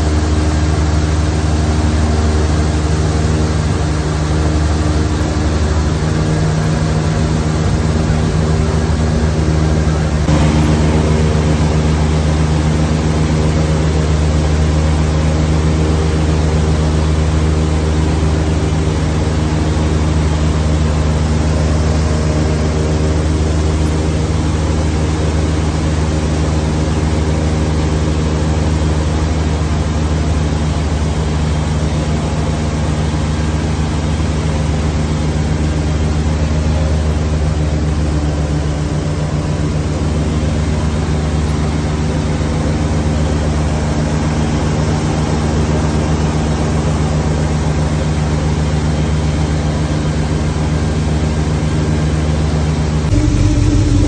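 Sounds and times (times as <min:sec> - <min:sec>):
boat engine running: 0:00.2 - 0:31.7, 0:53.0 - 0:54.0.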